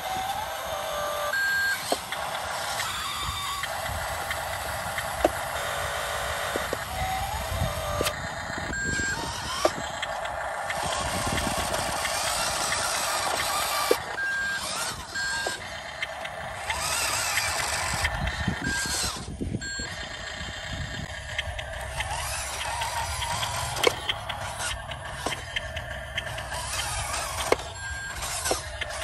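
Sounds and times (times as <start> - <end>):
electric motor whining: 0.0 - 29.0
short electronic beeps: 1.3 - 2.0, 5.6 - 10.1, 10.8 - 20.2, 22.0 - 29.0.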